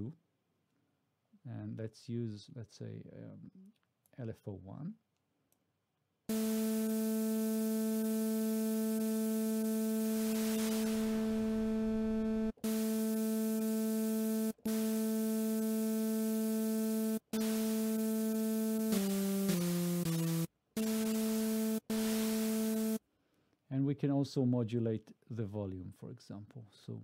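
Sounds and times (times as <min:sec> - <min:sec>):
synthesizer held note: 0:06.3 - 0:23.0
synthesizer noise hiss: 0:06.3 - 0:23.0.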